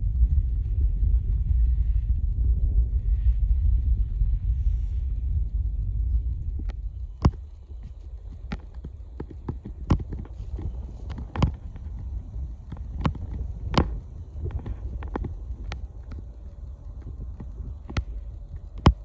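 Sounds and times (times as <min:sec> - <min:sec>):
wind rumble on microphone: 0:00.0 - 0:19.0
sharp clicks and snaps: 0:05.3 - 0:19.0.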